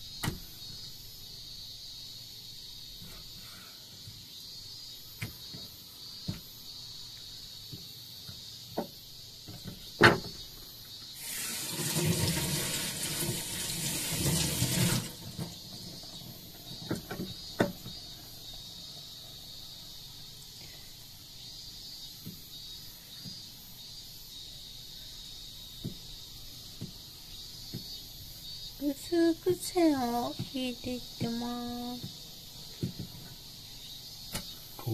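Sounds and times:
water running from a tap: 11.2 - 17.1.

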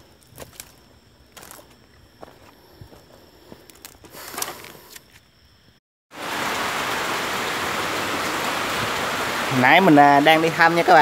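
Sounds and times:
heavy rain pouring: 6.1 - 11.0.

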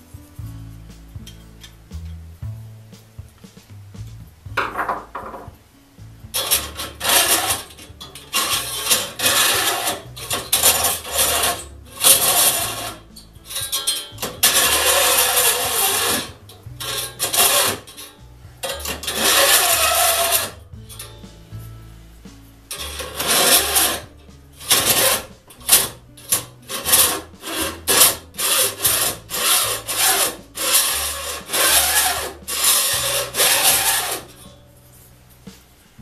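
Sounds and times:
file scraping saw teeth: 6.4 - 21.2, 22.7 - 34.5.

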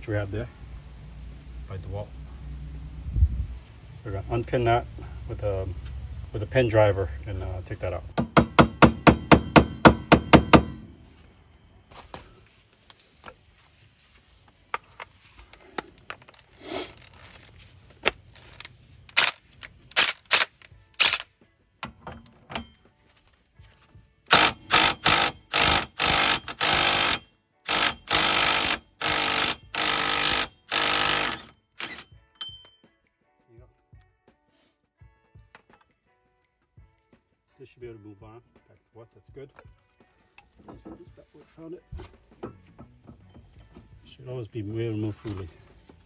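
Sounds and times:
hammer striking pin driver: 8.2 - 10.9
impact wrench bursts: 8.2 - 11.0, 19.1 - 22.0, 24.3 - 32.1.

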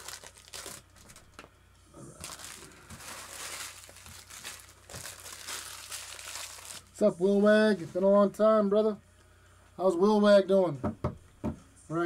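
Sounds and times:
foil wrapper crinkling: 0.0 - 1.5, 2.2 - 7.4.

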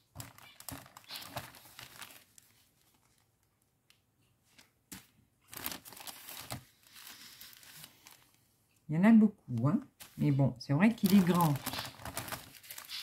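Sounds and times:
plastic bag crinkling: 0.0 - 3.4, 5.5 - 8.4, 10.8 - 13.0.

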